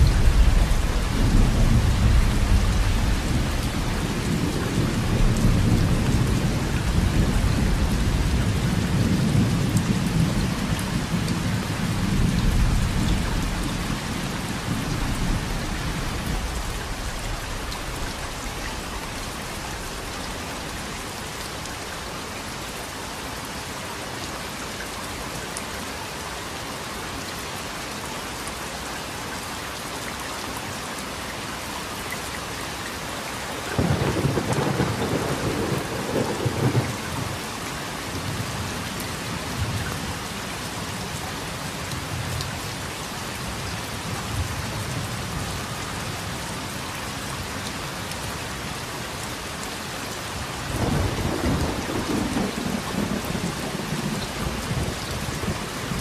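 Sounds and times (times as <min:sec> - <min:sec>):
rain hissing: 0:00.0 - 0:22.5
thunder rumbling: 0:33.7 - 0:37.3.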